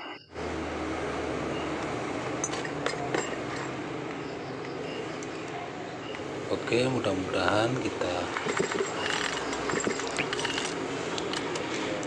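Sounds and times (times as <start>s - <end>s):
light clinks: 8.3s - 11.7s.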